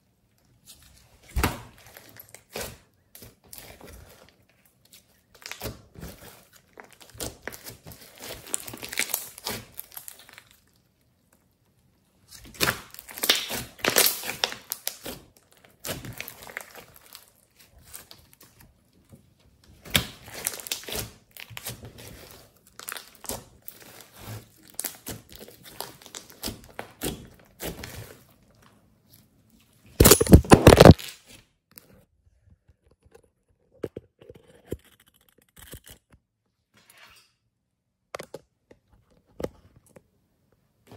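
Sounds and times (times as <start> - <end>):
slime crackling and tearing: 1.4 - 10.9, 12.3 - 18.6, 19.8 - 29.2, 30.0 - 31.4.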